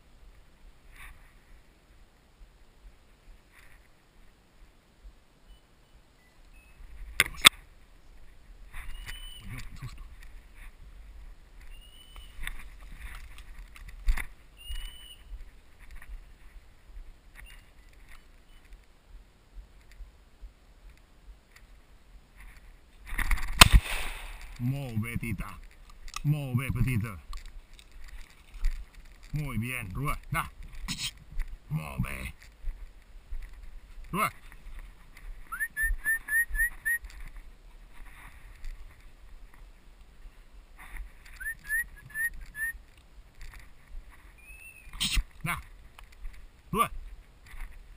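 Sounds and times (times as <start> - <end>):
light footsteps on dirt path: 0.0 - 47.9
faint ticks: 19.7 - 20.1
person whistling short rising notes: 35.5 - 37.0, 41.4 - 42.8.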